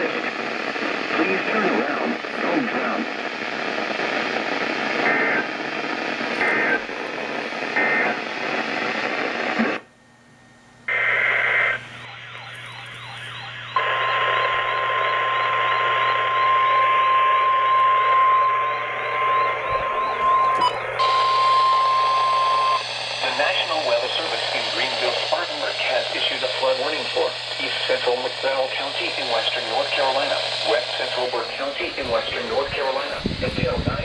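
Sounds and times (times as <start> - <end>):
radio hiss: 0.0 - 9.8, 10.9 - 34.0
steady warning alarm tone: 10.9 - 34.0
digital data tone bursts: 11.3 - 32.7.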